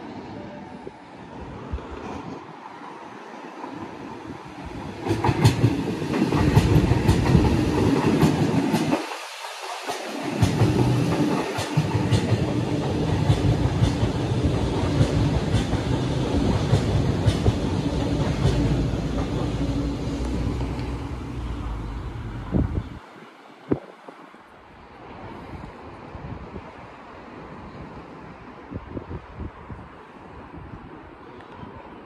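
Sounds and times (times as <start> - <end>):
train running past: 0.0 - 23.6.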